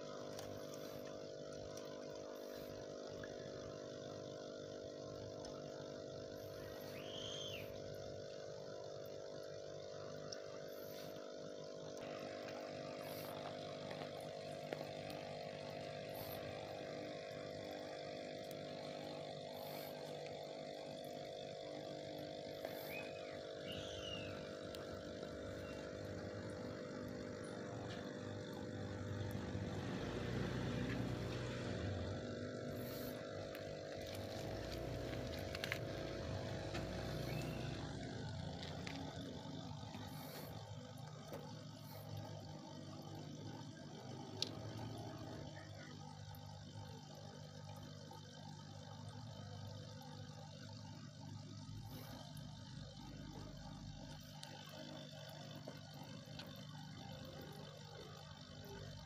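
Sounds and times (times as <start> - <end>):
bubbles rising through water: 0.0 - 45.6
air pump humming: 0.0 - 59.0.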